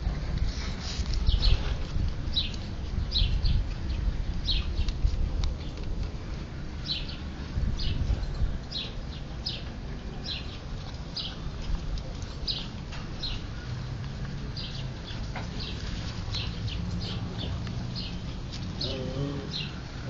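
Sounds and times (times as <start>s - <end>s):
low rumbling handling noise: 0.0s - 20.0s
bird chirping: 6.8s - 11.4s, 12.0s - 20.0s.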